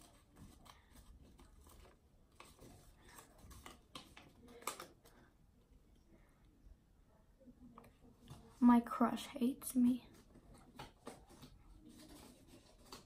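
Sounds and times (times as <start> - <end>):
paper rustling: 0.0 - 5.2, 10.1 - 13.0.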